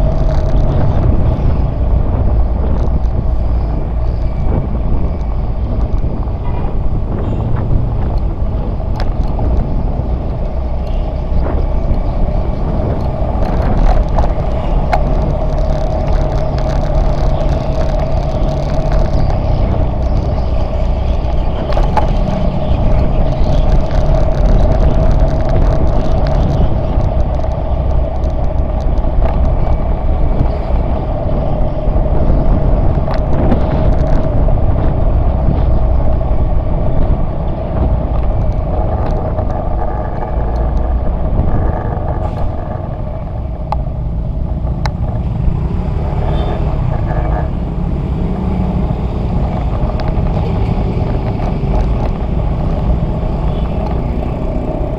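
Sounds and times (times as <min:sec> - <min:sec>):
wind rumble on microphone: 0:00.0 - 0:54.9.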